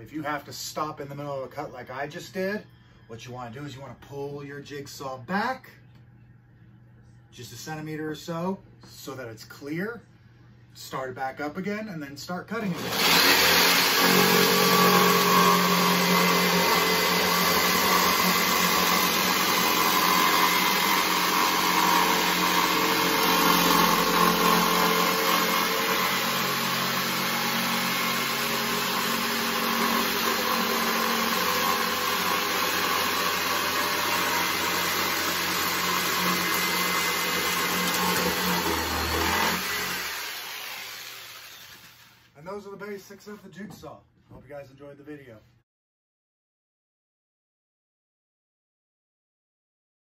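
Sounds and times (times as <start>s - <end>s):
electric jigsaw cutting plywood: 12.7s - 42.2s.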